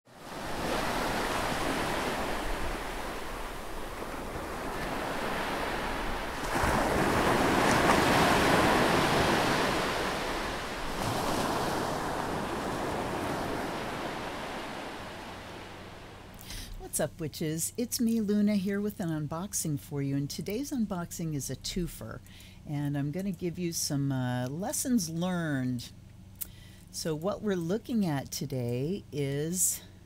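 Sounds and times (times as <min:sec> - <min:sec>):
ocean waves washing in: 0:00.1 - 0:16.4.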